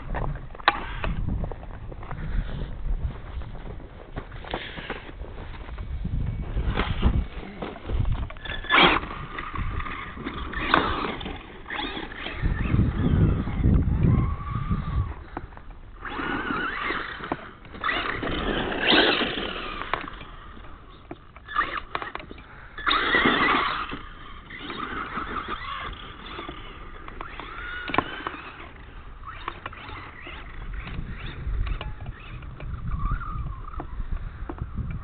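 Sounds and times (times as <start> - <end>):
rc truck motor whining: 0.6 - 1.2, 6.6 - 35.0.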